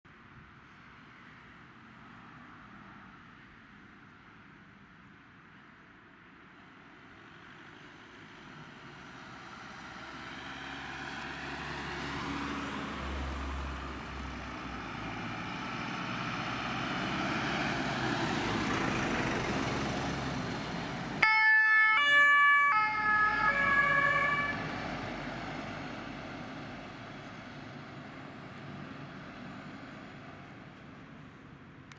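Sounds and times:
heavy trucks driving past: 0:07.2 - 0:31.4
two-tone emergency horn: 0:21.2 - 0:24.6.

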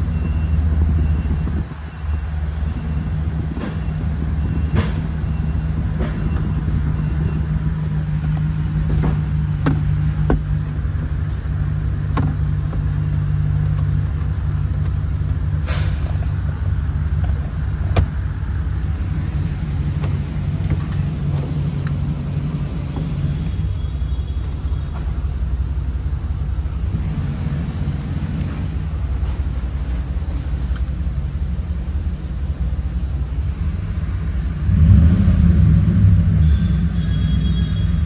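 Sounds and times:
truck engine idling: 0:00.0 - 0:38.0
clicks and taps of cab controls: 0:08.1 - 0:16.3, 0:17.0 - 0:18.2, 0:19.9 - 0:22.0.

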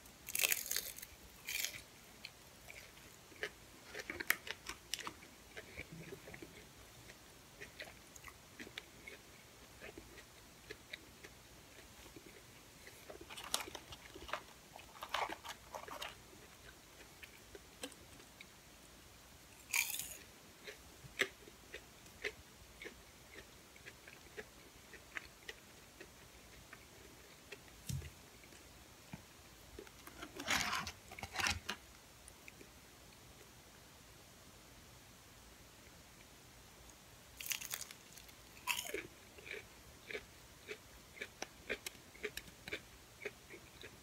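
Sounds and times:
crunchy chewing: 0:00.3 - 0:18.5, 0:19.6 - 0:28.6, 0:37.4 - 0:44.0.

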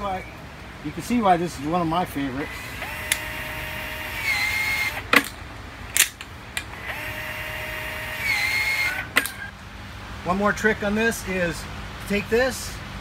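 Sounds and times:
cordless shear motor whining: 0:02.3 - 0:05.4, 0:06.6 - 0:09.6.

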